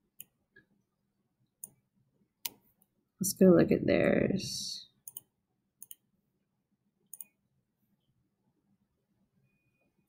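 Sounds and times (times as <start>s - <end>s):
computer mouse clicks: 0.1s - 0.7s, 1.6s - 1.8s, 5.0s - 6.1s, 7.1s - 7.4s.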